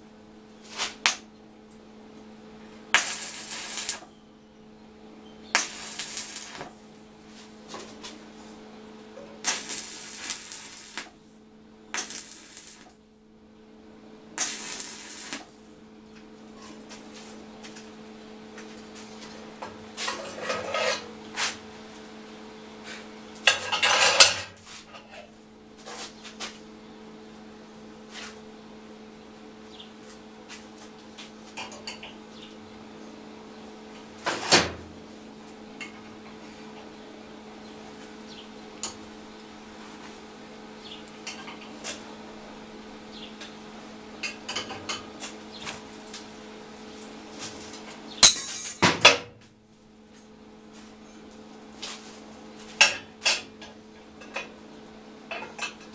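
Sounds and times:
welding arc crackling: 2.9 - 4.1, 5.5 - 6.8, 9.4 - 11.2, 11.9 - 13.0, 14.4 - 15.7.

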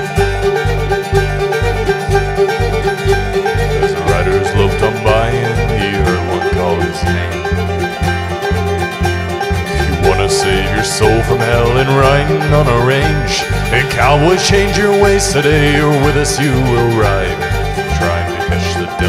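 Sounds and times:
acoustic guitar: 0.0 - 19.0
banjo: 0.0 - 19.0
fiddle playing sliding lines: 0.0 - 19.0
upright bass thumping: 0.0 - 19.0.

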